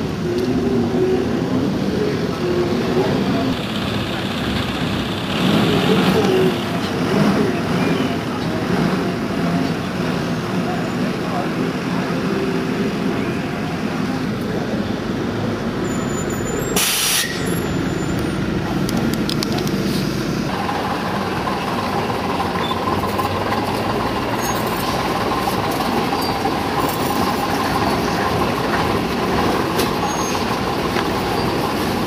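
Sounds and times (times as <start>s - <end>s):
bus diesel engine whining: 0.0s - 32.0s
diesel engines running: 0.0s - 32.0s
short loud hiss: 16.8s - 17.5s.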